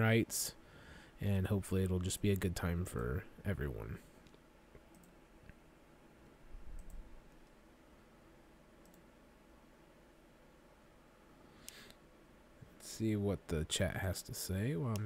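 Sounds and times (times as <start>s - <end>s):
computer mouse clicks: 4.2s - 5.6s, 6.6s - 7.6s, 8.8s - 9.1s.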